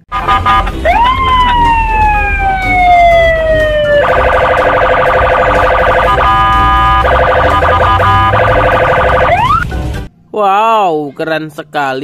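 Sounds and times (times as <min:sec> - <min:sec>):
traffic rumble: 0:00.0 - 0:08.7
police siren wailing: 0:00.1 - 0:09.7.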